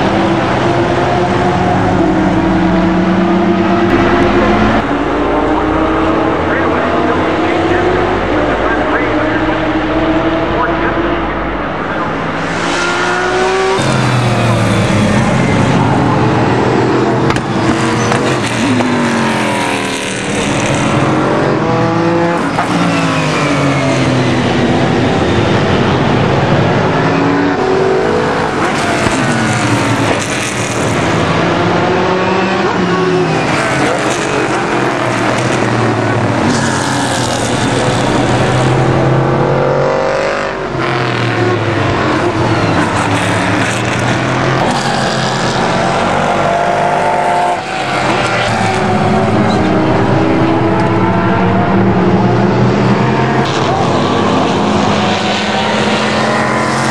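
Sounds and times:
race cars passing at speed: 0.0s - 56.9s.

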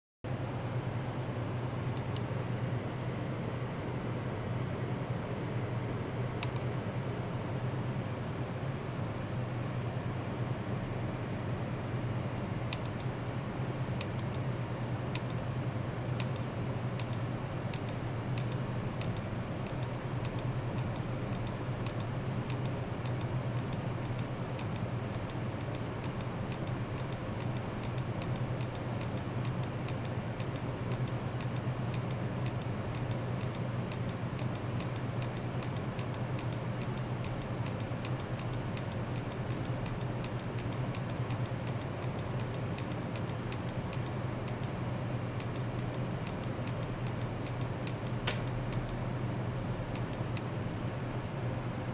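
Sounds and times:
steady low hum: 0.3s - 51.9s
rapid high ticking: 17.8s - 44.7s.

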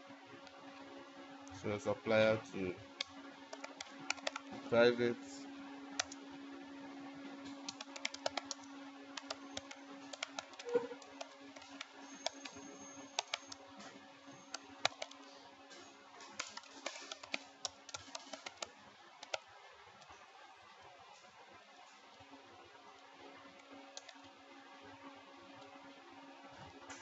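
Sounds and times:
steady low hum: 0.0s - 27.0s
computer keyboard typing: 3.0s - 4.9s, 6.0s - 6.2s, 7.5s - 13.6s, 14.3s - 19.4s, 24.0s - 24.2s.

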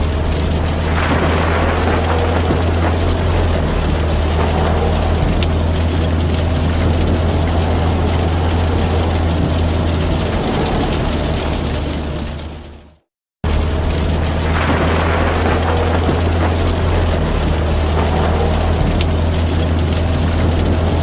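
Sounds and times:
car engine and road drone: 0.0s - 21.0s
rain hissing: 0.0s - 21.0s.

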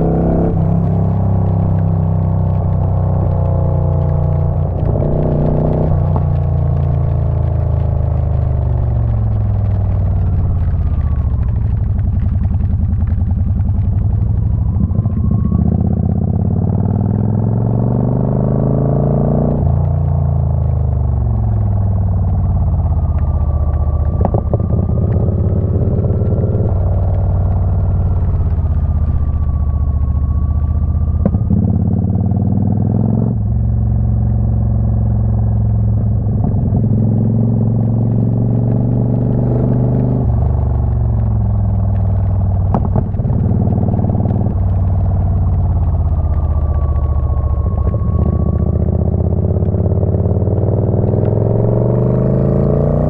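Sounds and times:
motorcycle engine revving: 0.0s - 8.9s, 21.1s - 41.3s, 42.6s - 53.0s.

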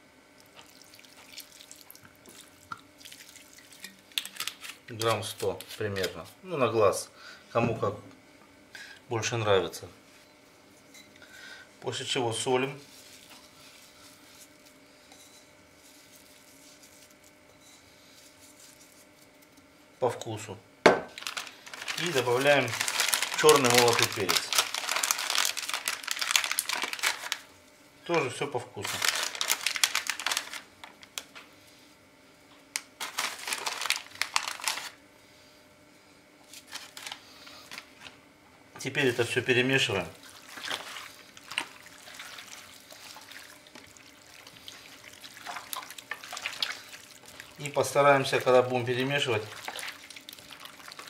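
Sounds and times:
pepper shaker crinkling bursts: 21.2s - 27.5s.

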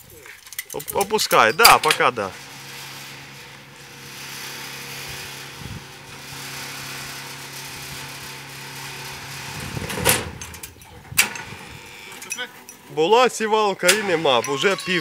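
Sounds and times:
loud metal clatter: 0.6s - 12.9s
motor humming: 2.1s - 12.9s.

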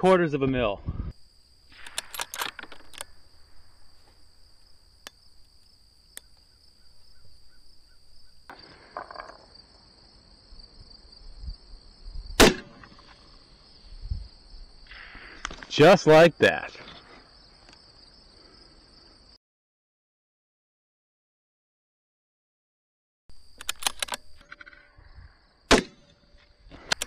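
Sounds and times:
crickets chirring: 0.0s - 19.4s, 23.3s - 27.0s
rifle shot: 1.7s - 3.0s, 12.4s - 13.2s, 25.7s - 26.2s
rifle being handled clicks: 1.7s - 3.2s, 23.6s - 24.5s.

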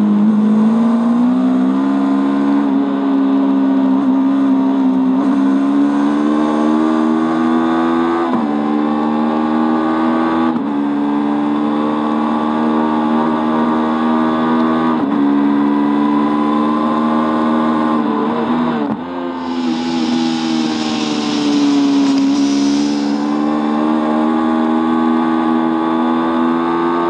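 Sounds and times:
motorbike engine at full throttle: 19.4s - 27.0s.

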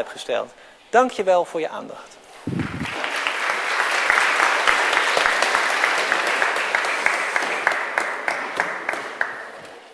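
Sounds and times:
audience applauding: 2.5s - 9.6s.

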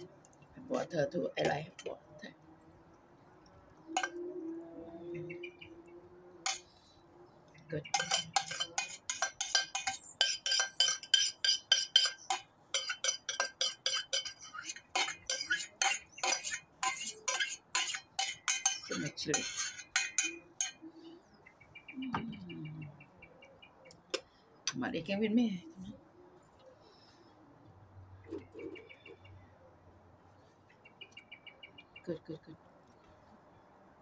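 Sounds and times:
metal spoon scraping steel pot: 3.9s - 4.2s, 6.4s - 6.9s, 7.7s - 20.9s.

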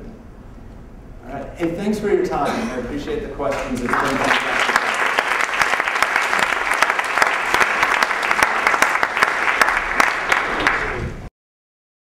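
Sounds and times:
audience applause: 3.5s - 11.3s.

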